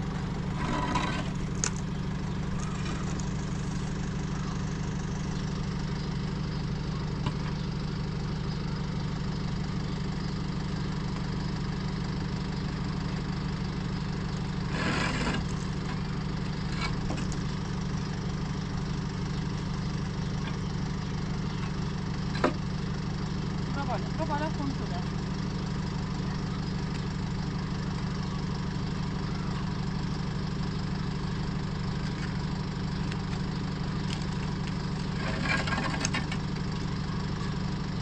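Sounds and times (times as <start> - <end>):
truck diesel engine idling: 0.0 - 38.0
concrete blocks scraping: 0.5 - 1.7, 14.7 - 15.7, 35.0 - 36.4.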